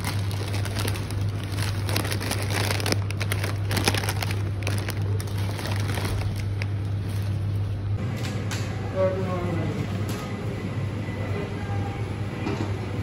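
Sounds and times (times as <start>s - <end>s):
plastic snack bags crinkling: 0.0s - 7.6s
steady low hum: 0.0s - 13.0s.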